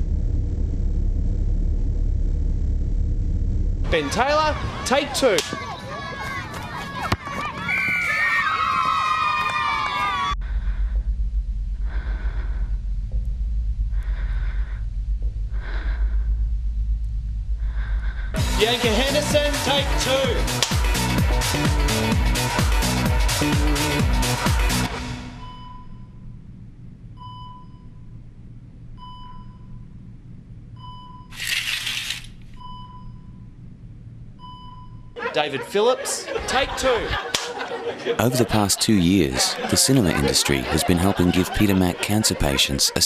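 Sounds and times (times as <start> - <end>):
steady low hum: 0.0 - 4.9, 10.3 - 19.1, 24.9 - 43.0
person breathing: 11.8 - 13.0, 13.9 - 16.6, 17.6 - 18.6.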